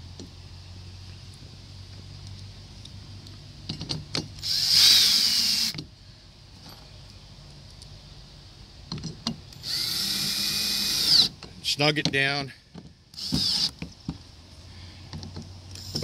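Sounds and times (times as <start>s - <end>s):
cordless drill motor whine: 4.4s - 5.8s, 9.6s - 11.3s, 13.1s - 13.8s, 15.7s - 16.0s
drill clicks: 9.6s - 11.3s, 13.1s - 13.9s.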